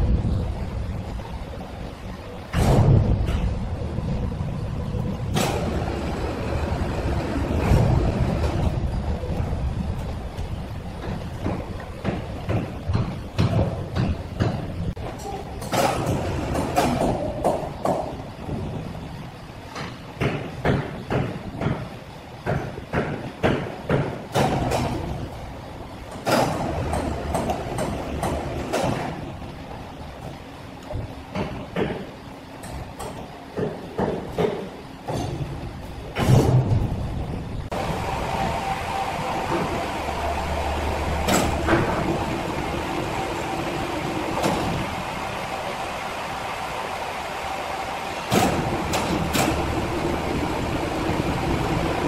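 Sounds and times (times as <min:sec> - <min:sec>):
lifting machinery rumbling and scraping: 0:00.0 - 0:17.3, 0:35.1 - 0:52.0
sharp knocks: 0:11.0 - 0:14.8, 0:19.7 - 0:25.1, 0:31.3 - 0:35.5.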